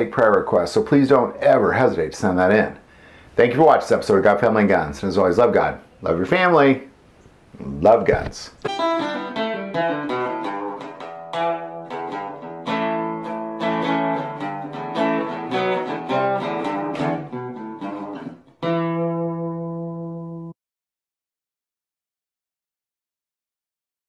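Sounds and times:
guitar picking slow melody: 8.7s - 20.5s.

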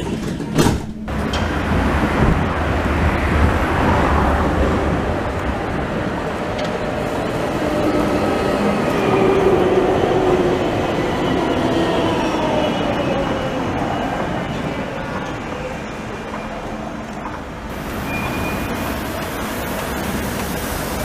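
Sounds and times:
tram wheels on rails: 0.0s - 21.0s.

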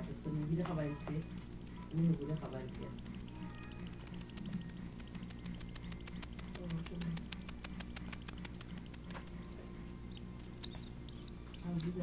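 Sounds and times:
bird chick begging chitter: 7.2s - 12.0s.

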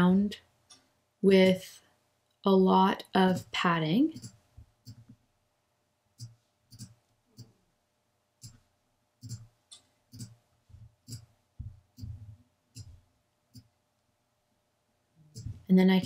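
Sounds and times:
computer mouse clicking: 9.2s - 10.4s.

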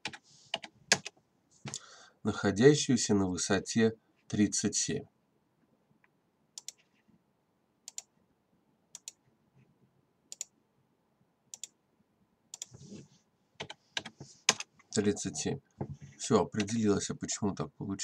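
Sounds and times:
computer mouse and keyboard clicks: 6.6s - 7.0s, 12.5s - 13.0s, 13.6s - 15.0s.

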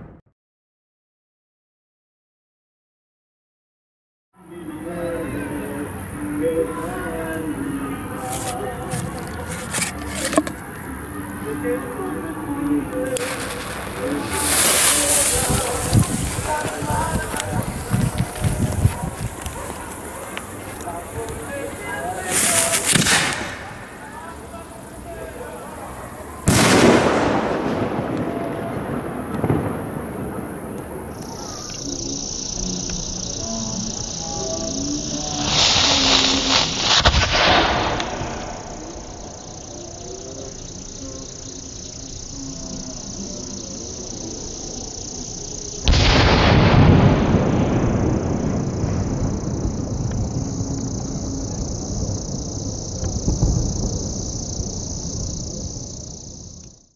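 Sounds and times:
insects chirping: 4.4s - 56.9s
rumbling echo: 10.9s - 31.7s
firework shell loud bang: 22.3s - 23.9s, 26.4s - 30.4s, 36.8s - 38.7s.

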